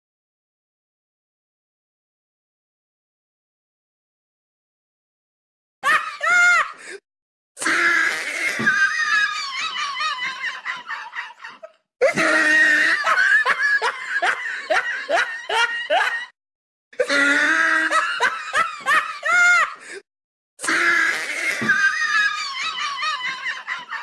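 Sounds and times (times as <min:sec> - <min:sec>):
high-pitched laughter: 0:08.1 - 0:16.3, 0:17.0 - 0:19.8, 0:21.1 - 0:24.0.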